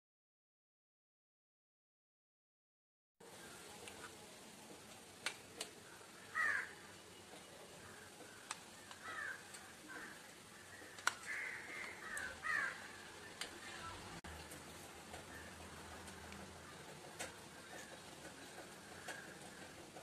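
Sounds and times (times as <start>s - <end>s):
sharp plastic clicks: 4.9s - 5.8s, 8.2s - 9.7s, 10.8s - 12.3s
crows cawing: 5.8s - 7.0s, 7.7s - 13.7s, 15.1s - 20.0s.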